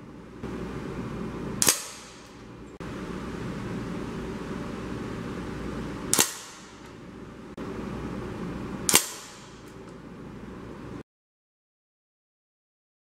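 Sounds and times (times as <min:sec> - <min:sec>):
air rifle shots: 0:01.6 - 0:02.4, 0:06.1 - 0:06.8, 0:08.9 - 0:09.7.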